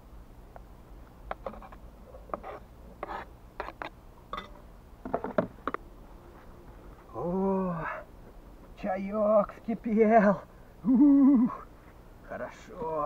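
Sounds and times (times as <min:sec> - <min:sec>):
knife scraping plastic cutting board: 0:01.3 - 0:03.9.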